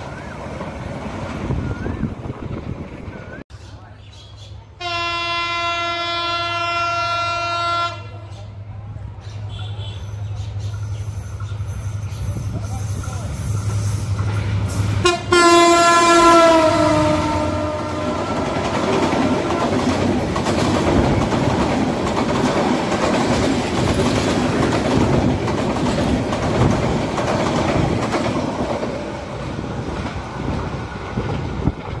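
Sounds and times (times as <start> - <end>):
train wheels rushing on rails: 0.0 - 3.4, 8.2 - 32.0
train horn blast: 4.8 - 8.3, 15.0 - 18.8.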